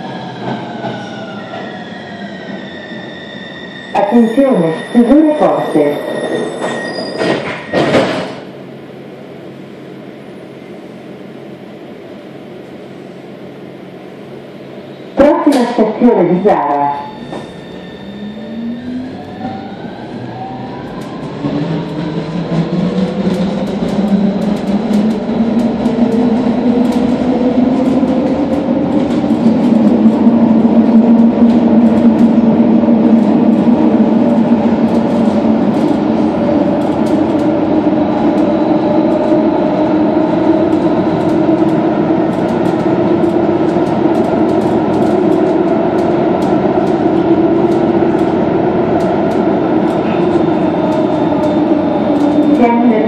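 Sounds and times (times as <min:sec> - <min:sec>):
train drone and rumble: 0:00.0 - 0:53.0
light clicks from rails: 0:40.7 - 0:48.4, 0:50.8 - 0:52.6.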